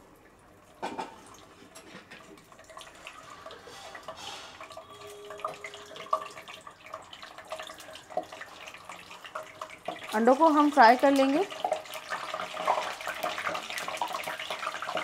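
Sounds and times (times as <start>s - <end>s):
oil sizzling and popping: 0.0s - 15.0s.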